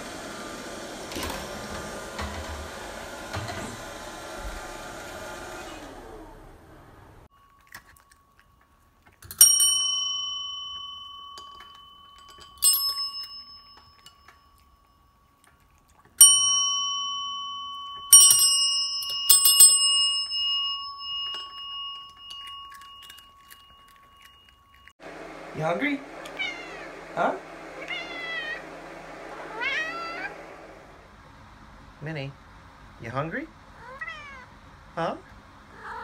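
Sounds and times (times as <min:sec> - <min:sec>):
service bell dinging: 0:09.3 - 0:15.3, 0:16.2 - 0:24.9.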